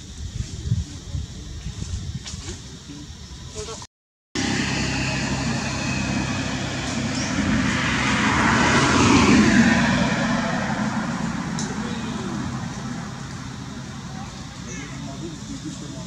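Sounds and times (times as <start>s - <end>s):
passing motor engine drone: 4.4s - 16.0s.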